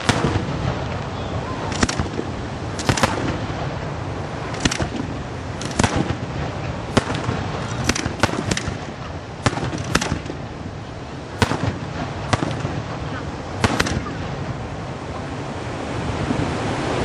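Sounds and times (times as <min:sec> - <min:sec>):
firework shells bursting: 0:00.0 - 0:01.1, 0:01.7 - 0:10.6, 0:11.4 - 0:14.4
steady background noise: 0:00.0 - 0:17.0.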